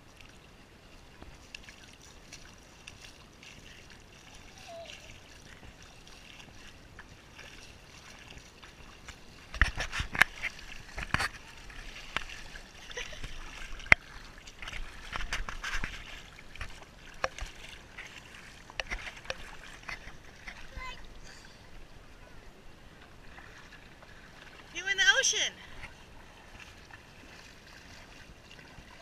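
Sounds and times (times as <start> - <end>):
seawater splashing around feet: 0.0 - 21.7, 22.9 - 29.0.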